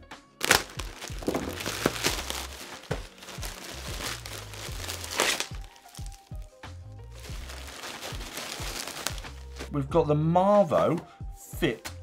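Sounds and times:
plastic bag crinkling: 0.4s - 6.5s, 7.1s - 9.7s.

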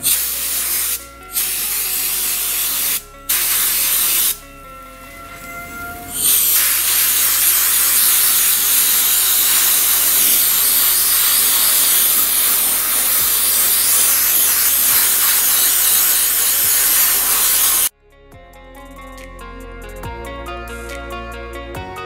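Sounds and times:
sandblasting gun hissing: 0.0s - 4.4s, 6.1s - 17.9s.

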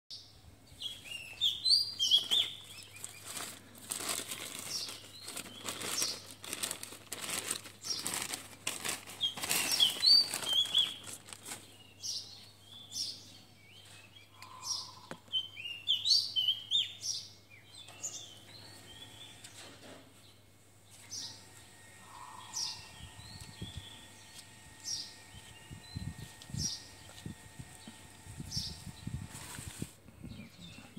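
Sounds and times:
small birds chirping: 0.1s - 30.9s
plastic bag crinkling: 2.0s - 11.8s.

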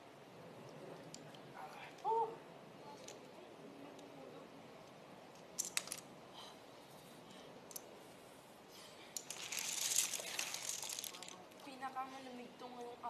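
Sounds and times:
domino tiles clicking: 5.6s - 6.0s, 9.2s - 11.4s.

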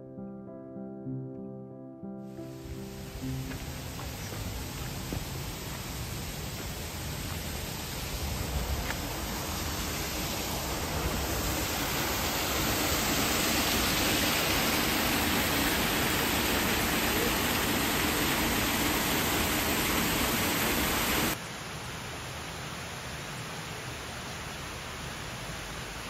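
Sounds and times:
waterfall pouring over rocks: 2.6s - 21.4s.

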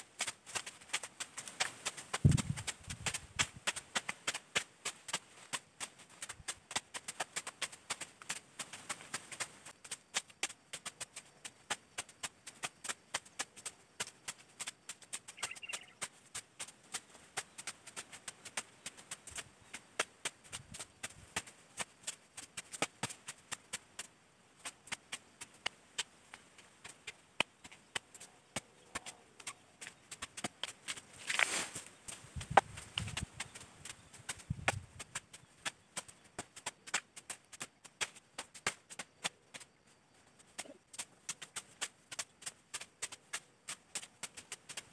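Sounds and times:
vegetation rustling: 0.0s - 10.2s, 26.1s - 36.9s
machetes chopping undergrowth: 0.2s - 11.5s, 24.6s - 39.5s.

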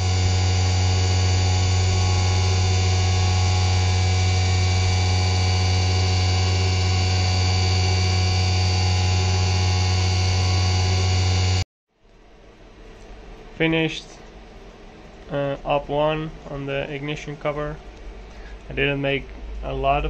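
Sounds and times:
milling machine whine: 0.0s - 11.6s.

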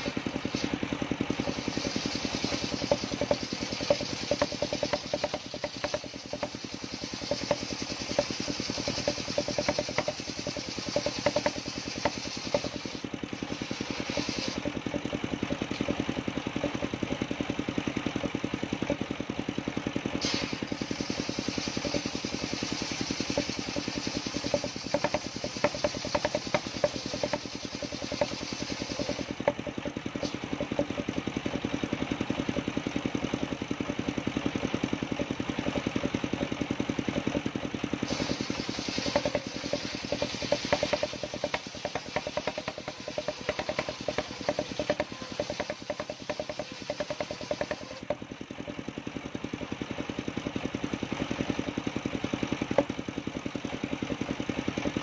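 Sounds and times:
high hissing cutting noise: 0.0s - 0.8s, 1.4s - 14.8s, 20.2s - 29.5s, 38.1s - 48.1s
saw blade ticking rattle: 0.0s - 19.2s, 20.6s - 49.8s
engine running under load: 0.0s - 55.0s.

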